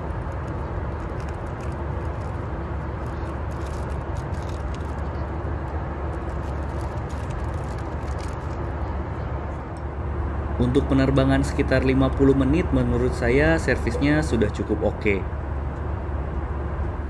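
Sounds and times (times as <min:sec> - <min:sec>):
plastic packet crinkling: 0:00.0 - 0:08.8
aircraft engines and airflow rushing: 0:00.0 - 0:17.0
faint steady hum: 0:00.0 - 0:17.0.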